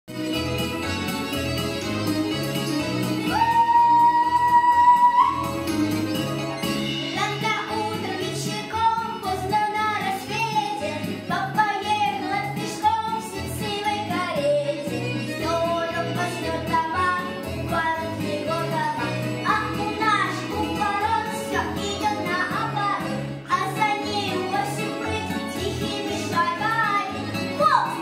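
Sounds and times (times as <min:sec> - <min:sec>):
backing track with bass line: 0:00.1 - 0:28.0
girl singing folk song: 0:07.1 - 0:28.0.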